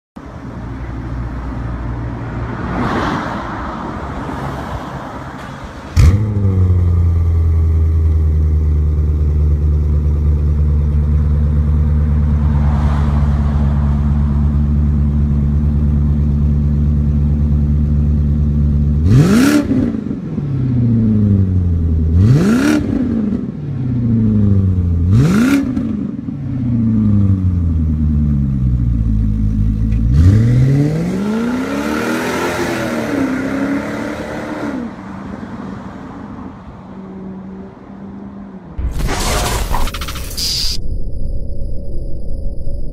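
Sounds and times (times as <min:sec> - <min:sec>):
engine revving: 0:19.0 - 0:19.9
car engine starting and idling: 0:38.8 - 0:42.9.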